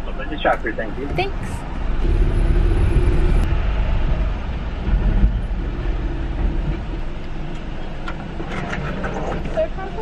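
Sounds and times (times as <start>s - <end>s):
engine and tyre rumble: 0.0s - 10.0s.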